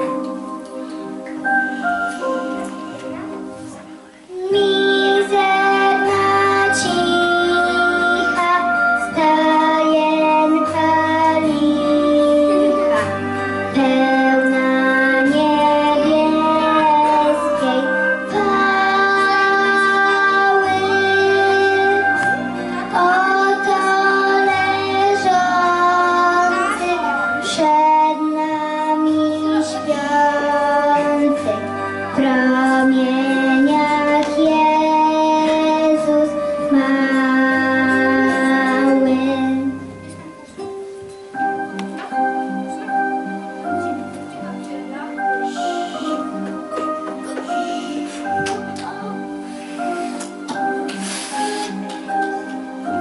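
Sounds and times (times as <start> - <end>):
instrumental accompaniment with bass: 0.0 - 53.0
girl singing into a microphone: 4.3 - 40.0.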